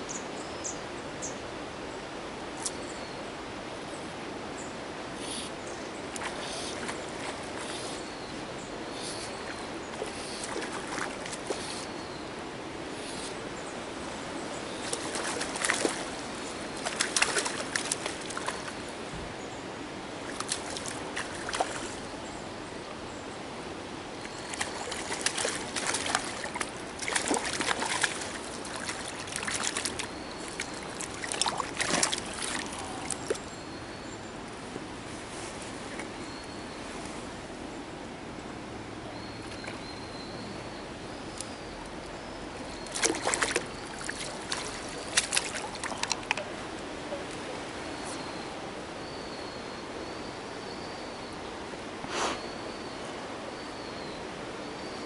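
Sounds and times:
trickle of flowing water: 0.0s - 50.4s
fish splashing at water surface: 24.5s - 33.4s, 42.9s - 46.4s.

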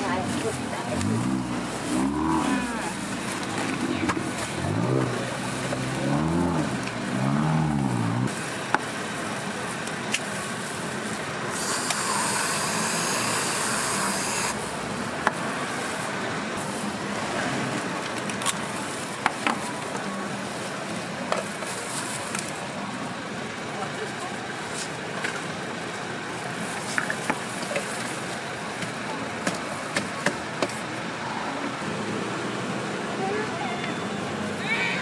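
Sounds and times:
street noise: 0.0s - 35.0s
whipped cream hissing from dispenser: 11.5s - 14.6s.

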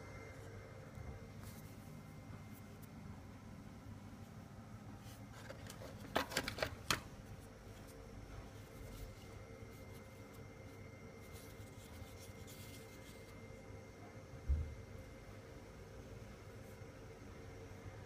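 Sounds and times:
faint steady high tone: 0.0s - 3.5s.

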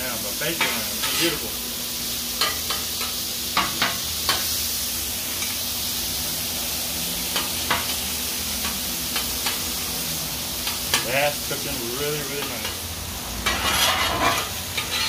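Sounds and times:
meat sizzling on a griddle: 0.0s - 15.0s
metal spatulas scraping steel: 0.7s - 1.4s, 13.4s - 15.0s.

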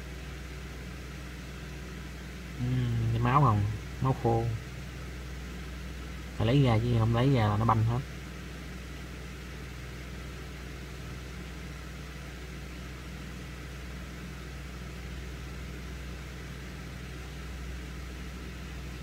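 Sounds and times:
steady low hum: 0.0s - 19.0s
even hiss: 2.5s - 4.6s.

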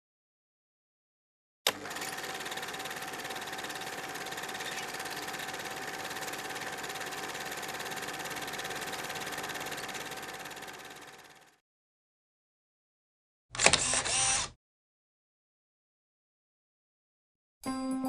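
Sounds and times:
small machine rattling and whining: 1.7s - 11.6s.

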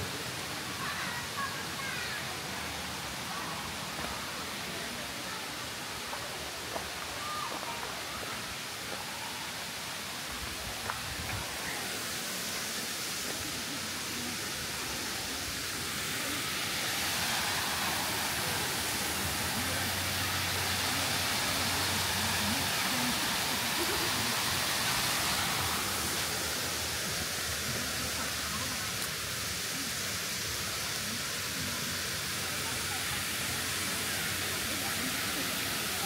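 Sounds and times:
waterfall rushing: 0.0s - 36.0s.

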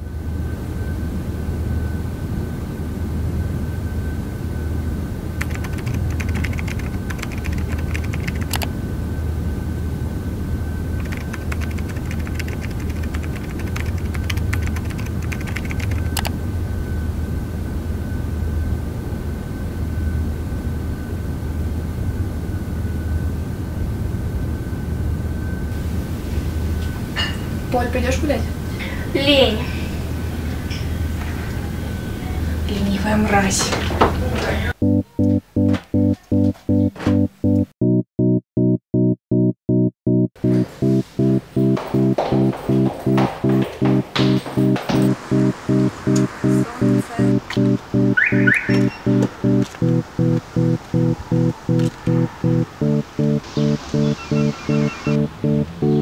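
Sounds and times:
low hum with faint whine: 0.0s - 35.6s
laptop keyboard typing: 5.4s - 8.7s, 11.0s - 16.3s, 41.6s - 53.4s.

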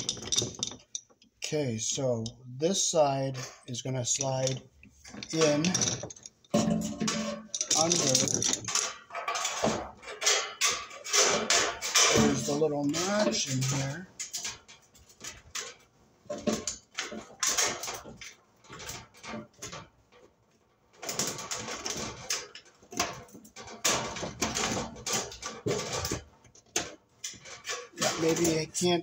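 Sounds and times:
metal clicks taps and scraping: 0.0s - 1.4s, 4.2s - 20.3s.

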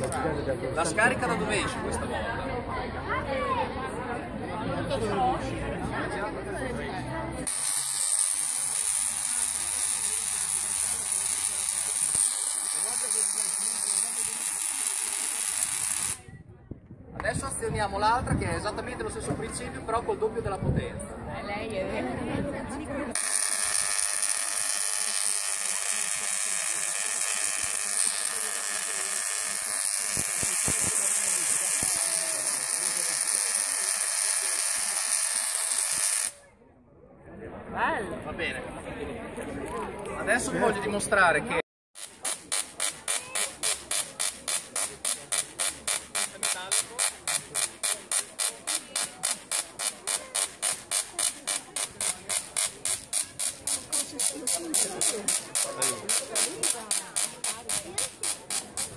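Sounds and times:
tesla coil buzzing sizzle: 7.5s - 16.2s, 23.2s - 36.4s.

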